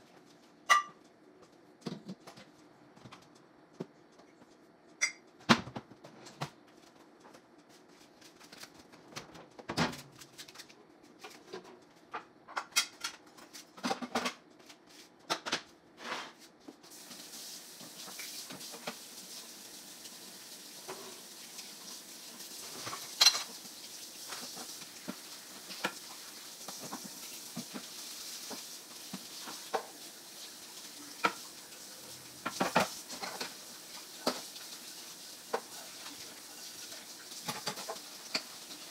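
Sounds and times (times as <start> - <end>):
pans clanking: 0.7 - 1.0, 22.6 - 23.6
dishes and kitchenware clinking: 0.7 - 1.1, 5.0 - 5.4, 22.6 - 23.6
faucet water running into sink: 16.9 - 38.9.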